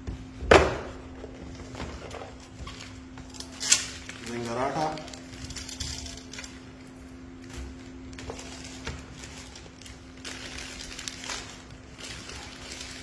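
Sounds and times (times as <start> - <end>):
steady low hum: 0.0 - 13.0
paper wrapper rustling: 1.4 - 13.0.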